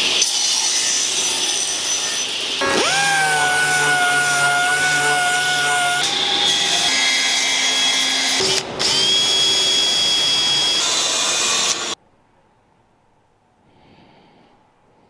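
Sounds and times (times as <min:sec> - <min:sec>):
drill-driver drilling into wood: 0:02.6 - 0:06.2
orbital sander whining: 0:02.6 - 0:07.8.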